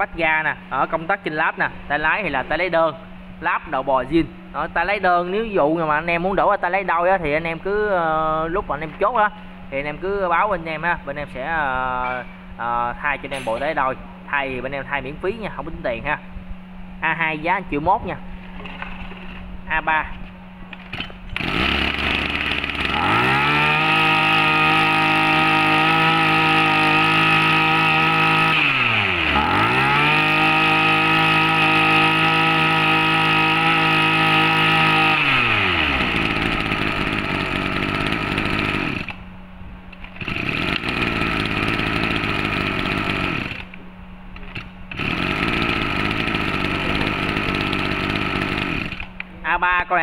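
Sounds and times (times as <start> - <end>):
brush cutter engine revving: 20.8 - 39.2, 40.0 - 43.8, 44.4 - 49.2.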